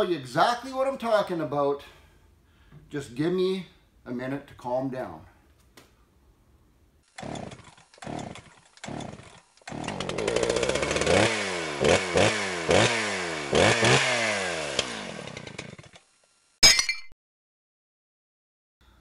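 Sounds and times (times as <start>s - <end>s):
chainsaw revving: 7.0s - 16.2s.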